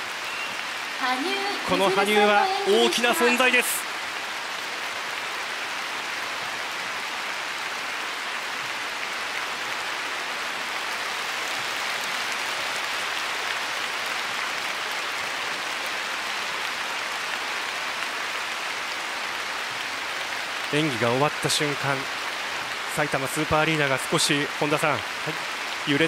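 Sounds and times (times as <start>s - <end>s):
crowd applauding: 1.0s - 3.9s.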